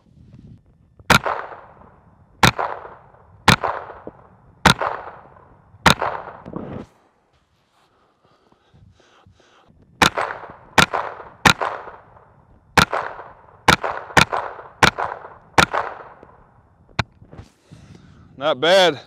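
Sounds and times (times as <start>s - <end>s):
rifle shots with echo: 1.1s - 6.5s, 10.0s - 16.6s.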